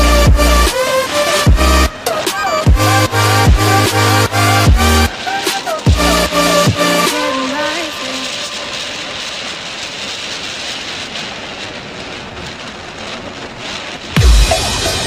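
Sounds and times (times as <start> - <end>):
loud music with heavy beat: 0.0 - 8.3, 14.2 - 15.0
wind and road noise: 0.0 - 15.0.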